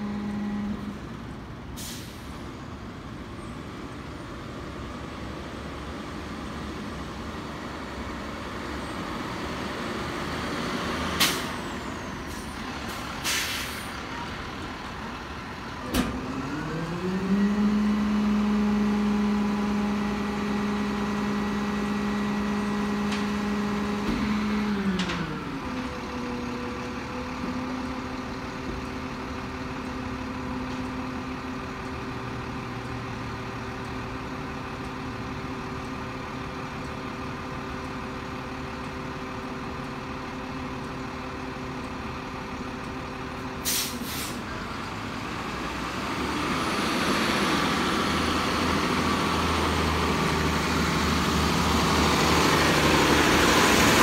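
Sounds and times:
diesel engine revving and idling: 0:00.0 - 0:54.0.

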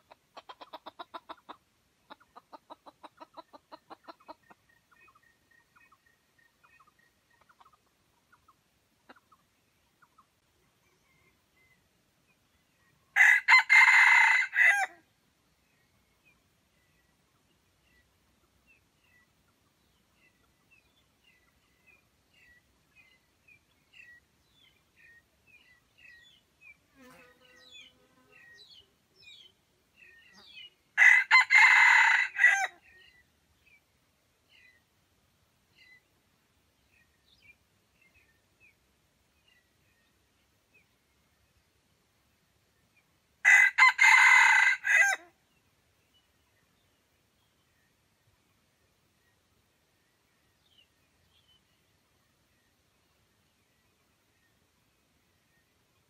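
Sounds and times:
small birds chirping: 0:00.0 - 0:13.2, 0:15.0 - 0:31.0, 0:32.8 - 0:42.1
rooster crowing: 0:13.2 - 0:15.0, 0:31.0 - 0:32.7, 0:43.4 - 0:45.3.

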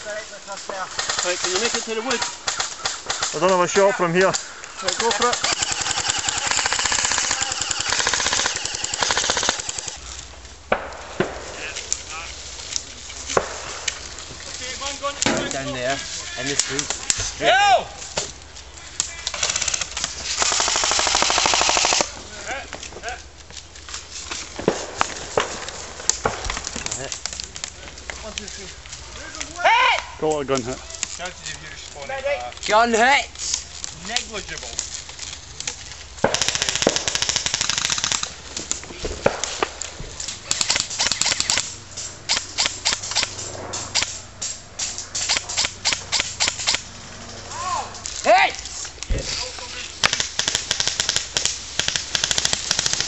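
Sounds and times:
airsoft rifles firing: 0:00.7 - 0:17.5, 0:18.9 - 0:22.6, 0:24.5 - 0:27.7, 0:36.2 - 0:48.4, 0:49.0 - 0:53.0
airsoft rifle firing bursts: 0:04.9 - 0:10.0, 0:19.3 - 0:22.1, 0:36.2 - 0:38.3, 0:40.4 - 0:41.7, 0:50.0 - 0:53.0
person shouting: 0:17.4 - 0:18.0, 0:29.5 - 0:30.2, 0:47.5 - 0:48.6.

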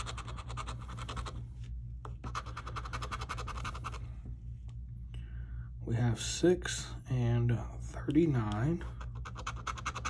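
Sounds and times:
scraper scratching lottery ticket: 0:00.0 - 0:01.4, 0:02.2 - 0:04.0, 0:08.9 - 0:10.0.

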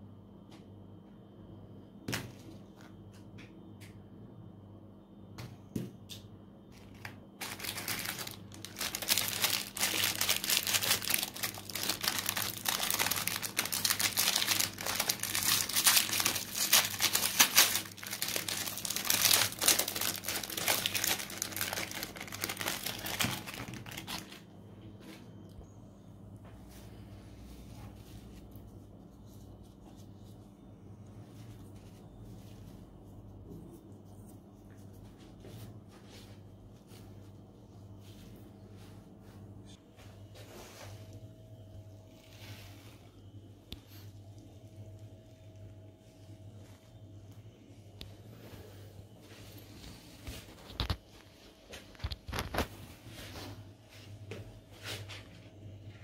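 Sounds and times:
foil wrapper crinkling and tearing: 0:06.8 - 0:24.5, 0:51.9 - 0:52.8.

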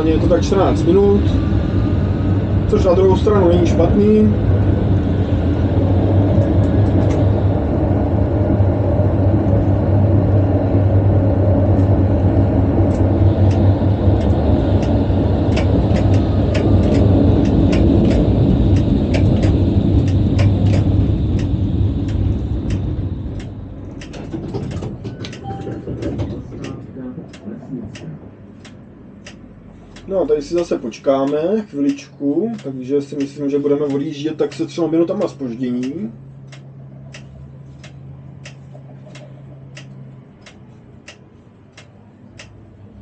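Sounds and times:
tram rumbling along rails: 0:00.0 - 0:31.3
scattered clicks: 0:12.9 - 0:42.6.

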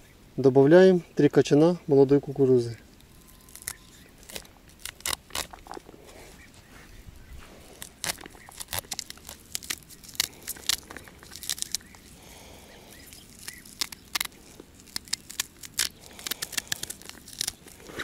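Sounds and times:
corn kernels snapping off cob: 0:03.6 - 0:05.6, 0:13.2 - 0:18.0.

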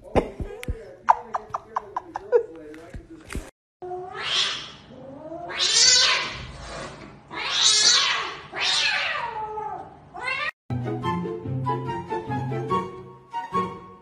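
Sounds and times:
cat yowling: 0:03.8 - 0:06.4, 0:07.3 - 0:10.6.

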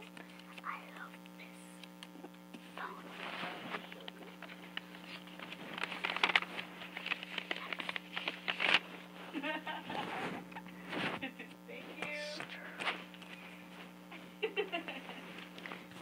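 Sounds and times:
girl whispering: 0:00.0 - 0:01.8, 0:02.6 - 0:04.0, 0:11.7 - 0:12.8
low electrical hum: 0:00.0 - 0:16.0.

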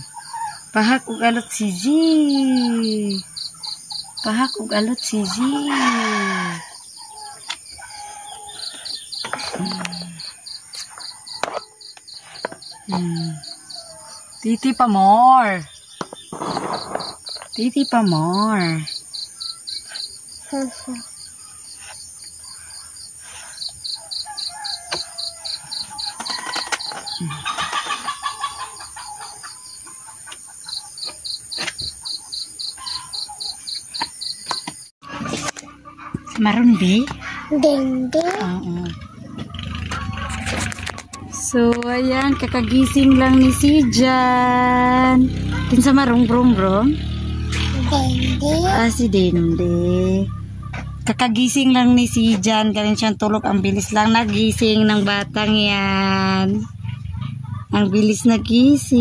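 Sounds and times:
high insect chirp: 0:00.0 - 0:34.9
chickens clucking: 0:02.6 - 0:14.3, 0:16.0 - 0:46.3, 0:47.1 - 0:51.2, 0:53.2 - 0:59.0
chicken calling: 0:16.4 - 0:37.5.

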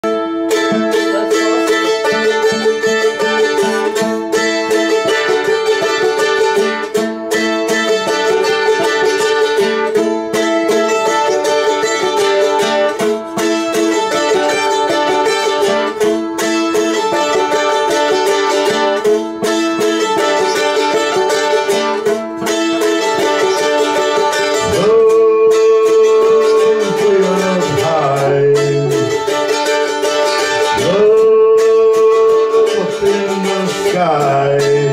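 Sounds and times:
electric guitar and violin jam: 0:00.0 - 0:34.9.

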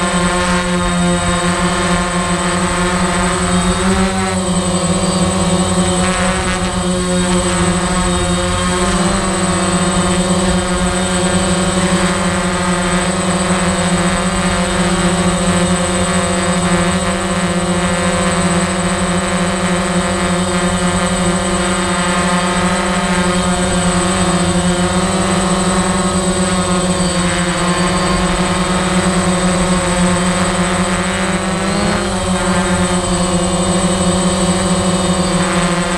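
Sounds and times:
drone propellers humming: 0:00.0 - 0:35.9.

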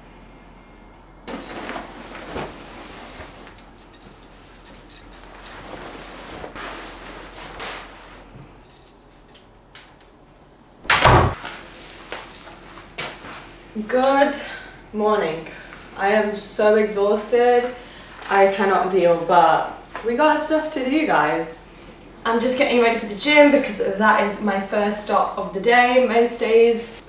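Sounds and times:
bedsheets rustling: 0:01.3 - 0:09.3, 0:10.9 - 0:14.4, 0:21.7 - 0:27.0
loud thud: 0:10.8 - 0:11.4.

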